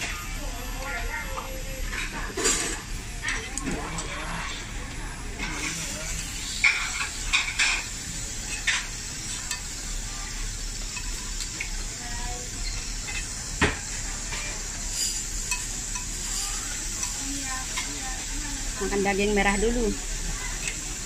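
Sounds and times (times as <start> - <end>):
meat sizzling on grill: 0.0 - 21.0
metal tongs clicking on plate: 15.5 - 16.1.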